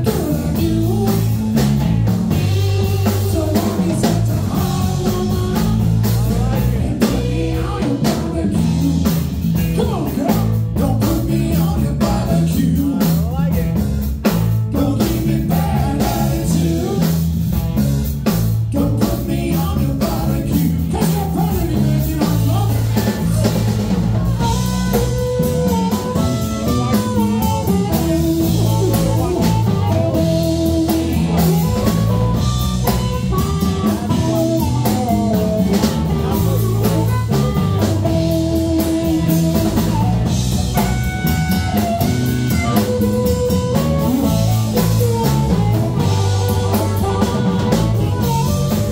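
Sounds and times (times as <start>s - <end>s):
man singing: 0.0s - 17.6s, 18.2s - 40.9s, 42.4s - 48.9s
drum kit playing: 0.0s - 48.9s
electric guitars playing: 0.0s - 48.9s
harmonica: 21.3s - 48.9s.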